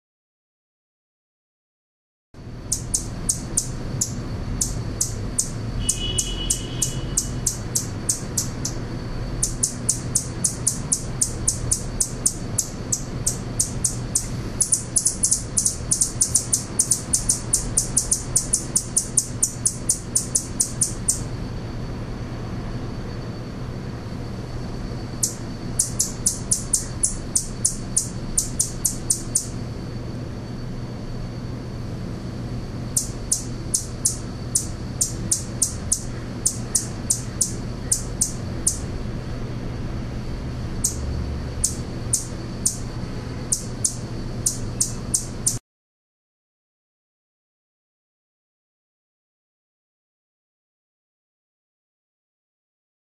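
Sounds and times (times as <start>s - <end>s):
steady low hum: 2.4s - 45.6s
hummingbird chipping: 2.5s - 21.3s, 25.0s - 29.6s, 32.9s - 39.0s, 40.8s - 45.6s.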